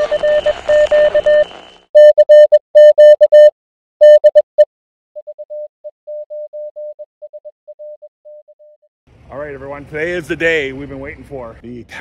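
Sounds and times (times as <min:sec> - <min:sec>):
morse code beeps: 0:00.0 - 0:08.8.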